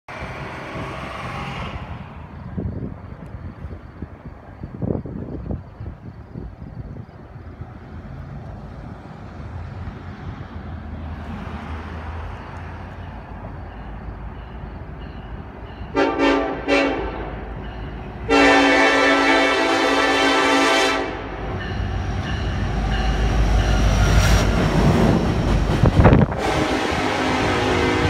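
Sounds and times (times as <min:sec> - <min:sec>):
freight cars rumbling by: 0:00.1 - 0:16.0, 0:21.1 - 0:28.0
locomotive engines: 0:00.1 - 0:28.0
locomotive horn blasts: 0:15.9 - 0:17.5, 0:18.3 - 0:21.5, 0:26.2 - 0:28.0.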